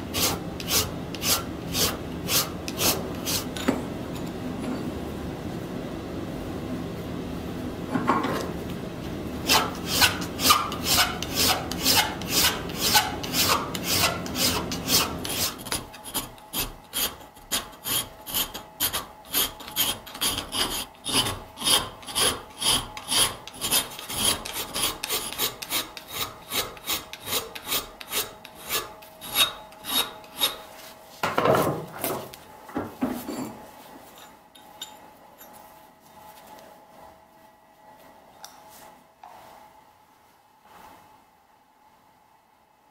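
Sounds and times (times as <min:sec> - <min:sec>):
file rasping on steel: 0:00.1 - 0:03.5, 0:09.5 - 0:30.6
blade scraping in vise: 0:09.5 - 0:30.6.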